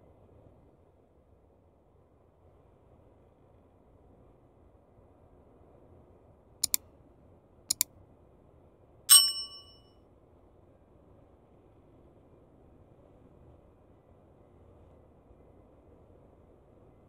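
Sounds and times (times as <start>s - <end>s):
bright metallic ding: 9.1s - 9.8s.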